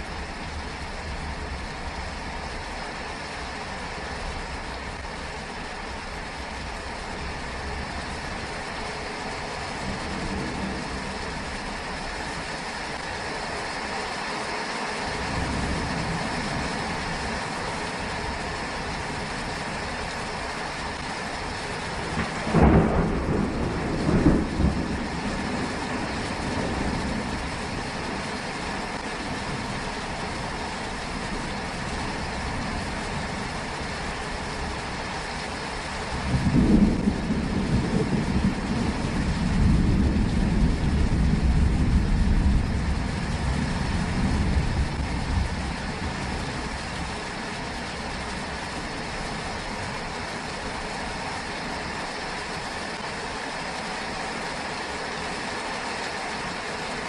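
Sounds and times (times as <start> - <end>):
steady rain falling: 0.0 - 57.0
thunder rumbling: 7.7 - 13.1, 15.2 - 51.0.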